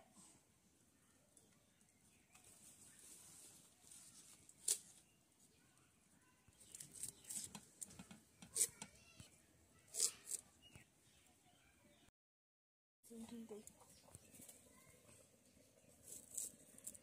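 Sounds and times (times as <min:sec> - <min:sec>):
knife cutting fresh vegetables: 0:06.7 - 0:09.0, 0:09.9 - 0:10.5.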